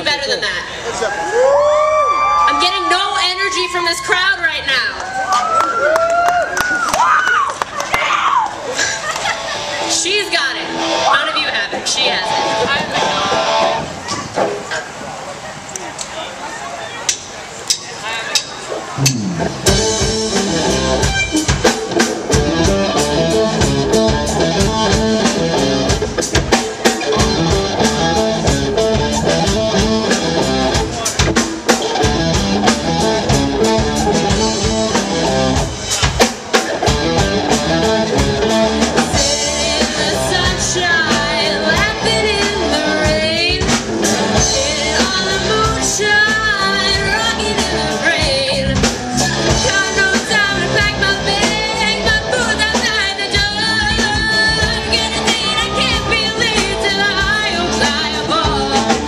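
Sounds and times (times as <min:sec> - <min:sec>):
live rock band playing: 0:09.0 - 0:14.6, 0:18.6 - 0:59.0
woman singing: 0:39.1 - 0:43.8, 0:44.4 - 0:59.0.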